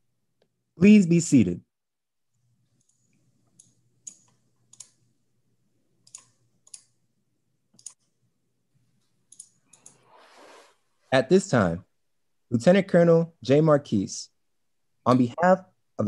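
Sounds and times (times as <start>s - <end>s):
faint irregular clicks: 2.3s - 5.2s, 5.9s - 7.0s, 7.7s - 8.2s, 8.8s - 10.1s.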